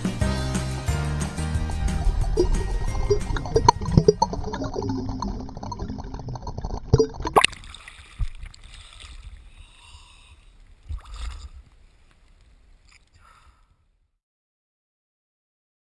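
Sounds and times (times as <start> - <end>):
water splashing and gurgling: 0.3 - 11.9.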